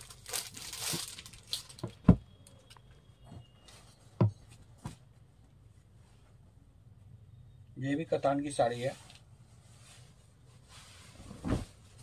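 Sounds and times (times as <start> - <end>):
fabric rustling: 8.9 - 12.0.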